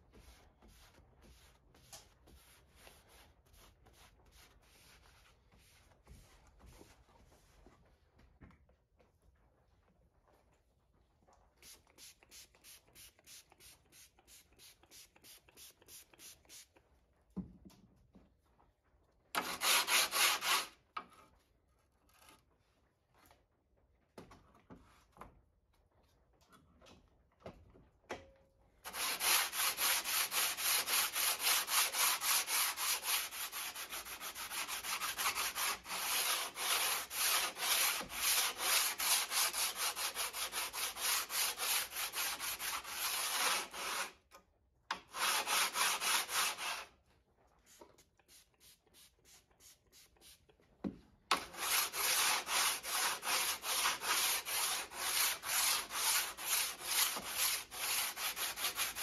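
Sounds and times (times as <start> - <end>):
sandpaper rubbing on steel blade: 28.9 - 44.2, 45.1 - 46.9, 51.4 - 59.0.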